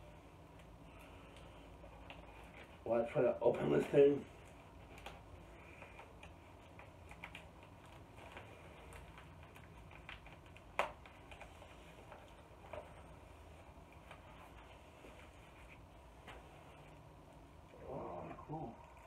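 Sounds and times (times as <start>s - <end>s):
plastic package crinkling and clicking: 4.8s - 12.9s.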